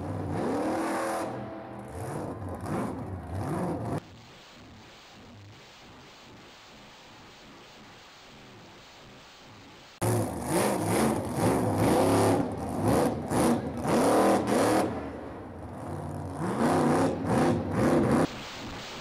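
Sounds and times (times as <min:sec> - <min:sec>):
truck engine revving hard: 0:00.0 - 0:04.0, 0:10.0 - 0:18.3.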